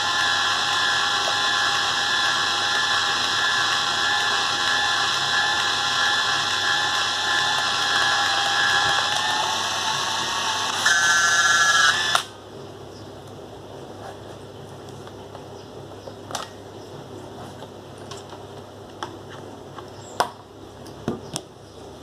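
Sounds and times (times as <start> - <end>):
camera motor rewinding film: 0.0 - 12.3.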